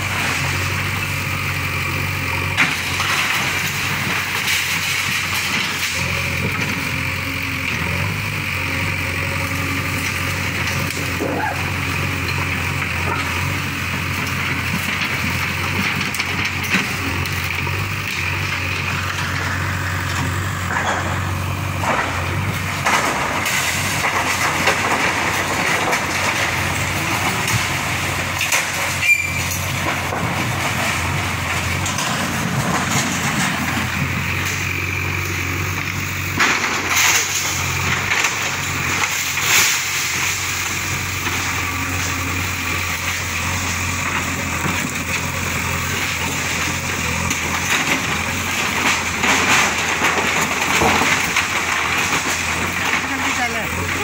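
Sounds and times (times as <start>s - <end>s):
diesel engine under load: 0.0s - 54.0s
masonry and tiles crashing: 1.6s - 7.2s, 10.1s - 54.0s.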